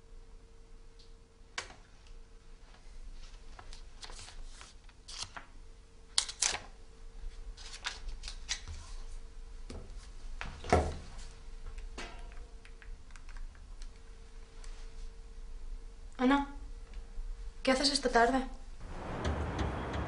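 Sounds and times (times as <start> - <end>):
faint steady hum: 0.0 - 20.0
paper rustling: 3.4 - 5.5, 7.3 - 9.1.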